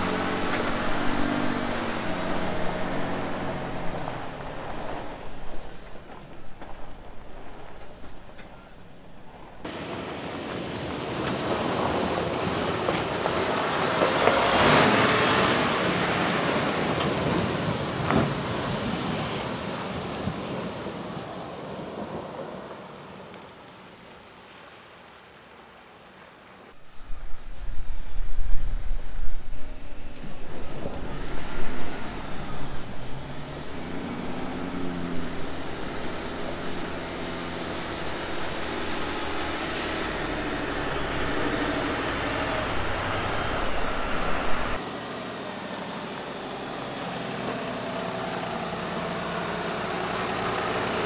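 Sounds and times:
water splashing: 0.0s - 21.1s, 29.8s - 44.8s
truck engine: 0.0s - 22.8s, 26.8s - 51.0s
tyres churning mud: 0.0s - 23.0s, 29.9s - 51.0s.

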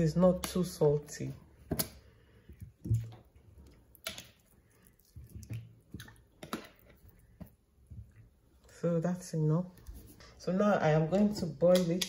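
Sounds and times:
slices plopping into water: 1.6s - 8.2s.

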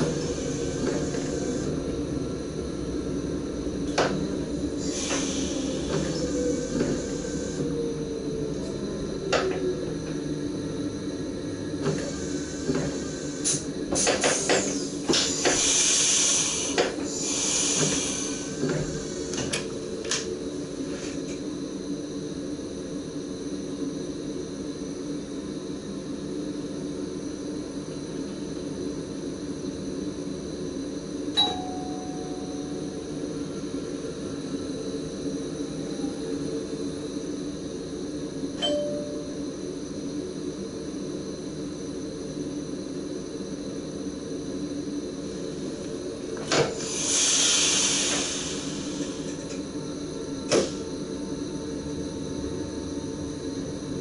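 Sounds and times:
train cab equipment humming: 0.0s - 54.0s
air hiss: 4.8s - 7.6s, 12.0s - 19.4s, 46.7s - 49.5s
short ding: 31.4s - 32.5s, 38.6s - 39.4s.

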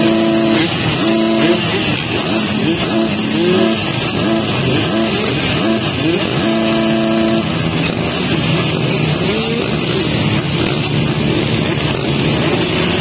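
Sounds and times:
motocross bikes revving: 0.0s - 13.0s.

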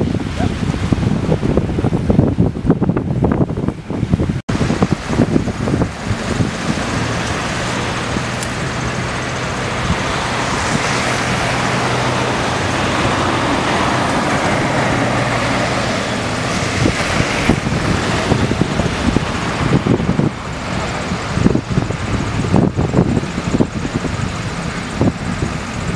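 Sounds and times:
traffic on wet road: 0.0s - 25.9s
vehicle passing: 4.5s - 25.9s.

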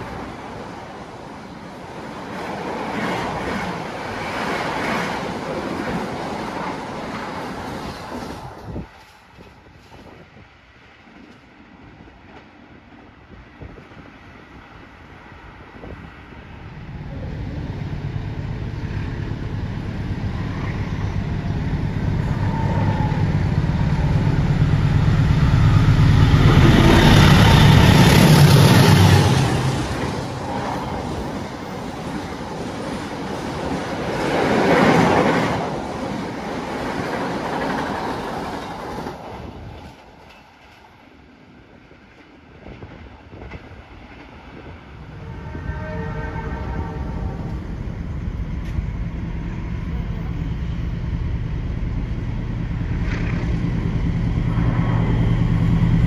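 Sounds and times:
diesel locomotive engine rumble: 5.4s - 56.0s
train wheels running past: 15.6s - 56.0s.

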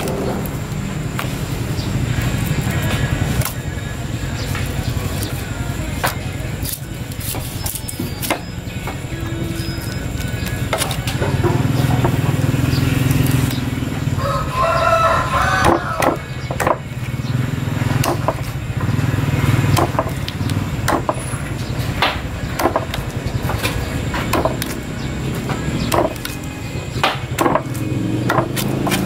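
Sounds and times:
rooster crowing: 14.0s - 16.3s.

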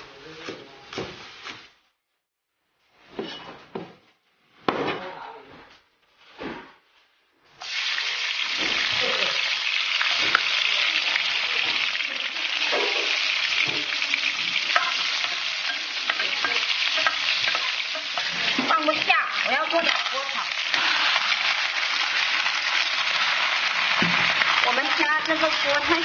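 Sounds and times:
food sizzling in hot oil: 7.6s - 26.0s.

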